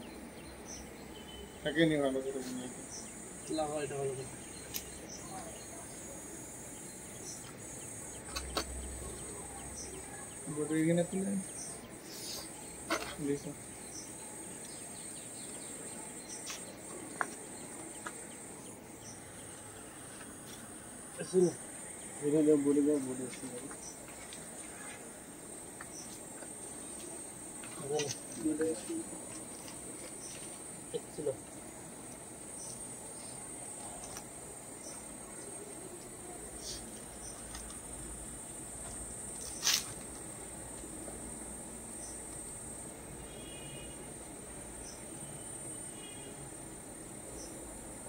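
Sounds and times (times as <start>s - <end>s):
crickets droning: 0.0s - 48.0s
high insect chirring: 0.0s - 48.0s
sharp click or rustle: 4.7s - 4.9s, 8.3s - 8.8s, 39.4s - 40.2s.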